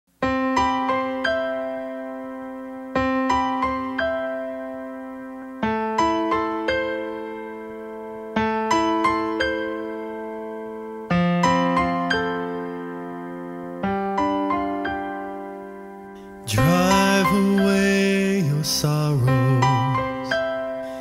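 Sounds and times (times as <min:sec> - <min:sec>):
slow electric piano music: 0:00.1 - 0:21.0.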